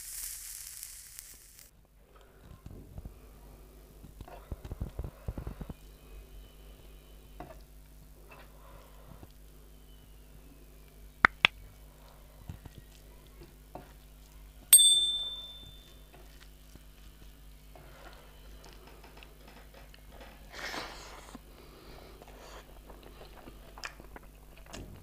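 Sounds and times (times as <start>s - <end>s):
bright bell ding: 14.8s - 16.0s
food squishing by hand: 16.1s - 18.8s, 22.2s - 25.0s.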